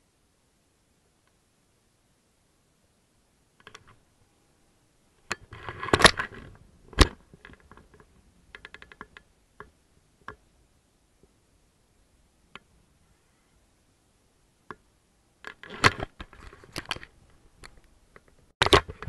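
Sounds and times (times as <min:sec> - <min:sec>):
rapid ticks: 0:07.5 - 0:10.4.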